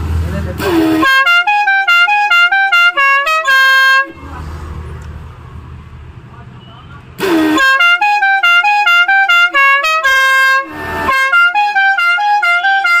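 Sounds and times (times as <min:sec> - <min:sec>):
musical air horn tune: 0:00.6 - 0:04.3, 0:07.2 - 0:13.0.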